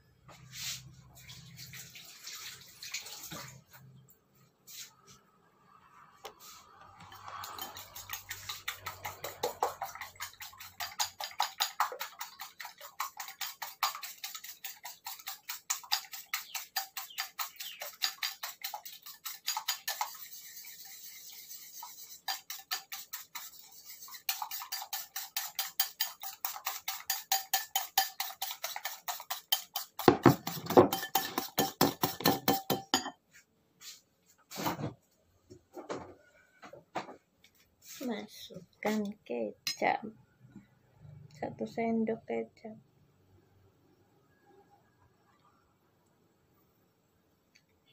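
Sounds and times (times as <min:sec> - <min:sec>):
spoon beating eggs in bowl: 0:06.8 - 0:33.2.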